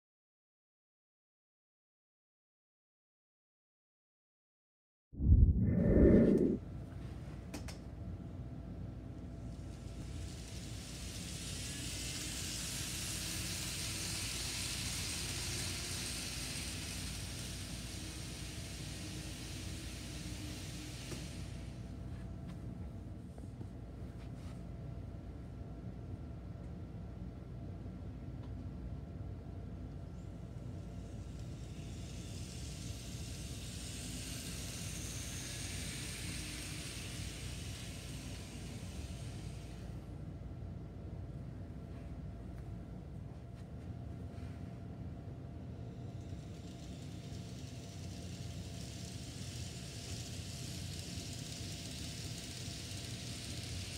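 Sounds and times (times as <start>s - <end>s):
steady low hum: 5.2s - 53.9s
model train hissing whir: 9.5s - 22.3s, 30.0s - 40.7s, 45.4s - 53.9s.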